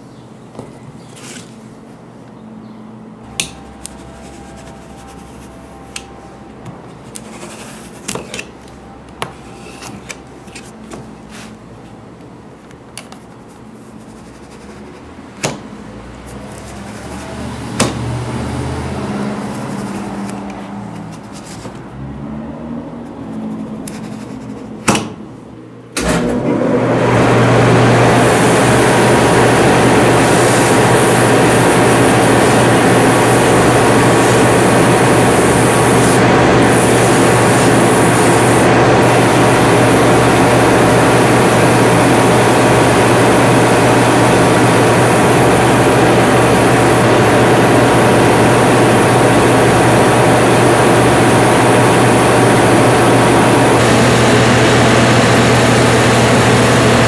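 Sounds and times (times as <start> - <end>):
grinding machine rushing: 26.1 - 57.0.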